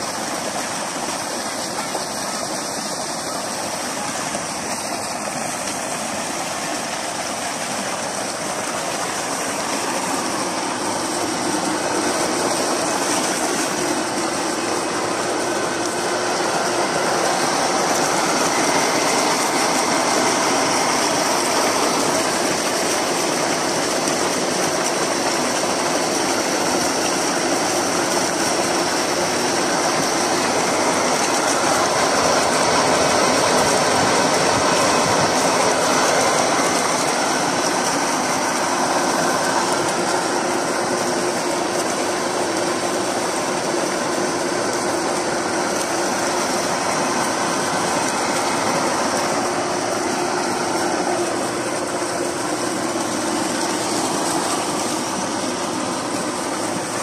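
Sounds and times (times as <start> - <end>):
electric water pump running: 0.0 - 57.0
water rushing from pipe: 0.0 - 57.0.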